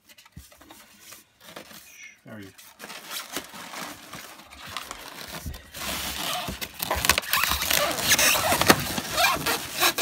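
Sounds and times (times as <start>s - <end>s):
cellophane rustling and crinkling: 0.0s - 10.0s
cardboard rubbing: 2.6s - 10.0s.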